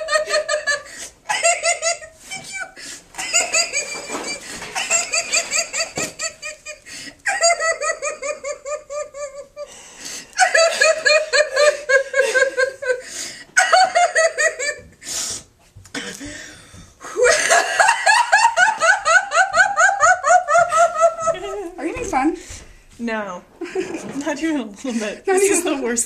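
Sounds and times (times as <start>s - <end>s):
woman laughing uncontrollably: 0.0s - 9.7s, 10.4s - 15.0s, 17.0s - 21.8s
woman gasping breaths: 13.0s - 13.6s, 15.0s - 17.2s.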